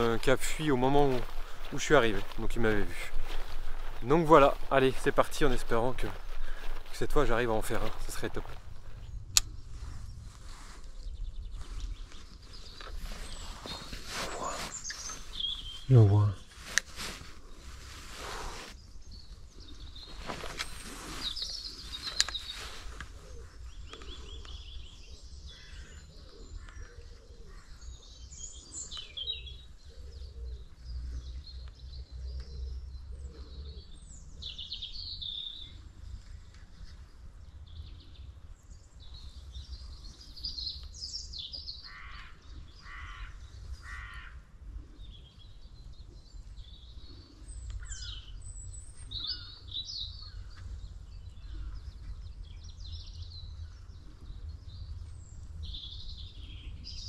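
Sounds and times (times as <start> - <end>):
harsh bird calls: 0.0 - 17.1, 18.1 - 35.8, 39.0 - 57.0
birds chirping and calling: 0.0 - 57.0
low rumble: 7.9 - 12.2.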